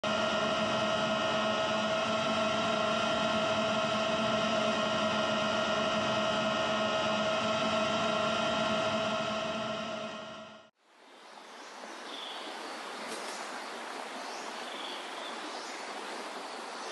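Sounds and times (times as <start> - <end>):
drone propellers humming: 0.0 - 10.7.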